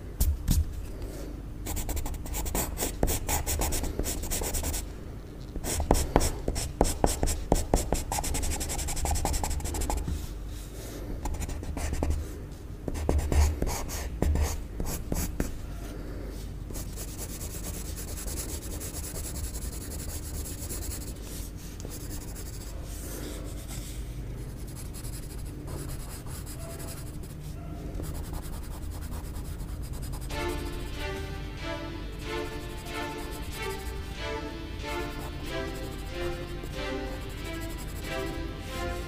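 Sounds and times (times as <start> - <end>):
pencil scratching on paper: 1.7 - 4.8, 5.6 - 10.2, 12.9 - 15.5, 16.8 - 23.9, 24.5 - 30.8, 35.2 - 38.4.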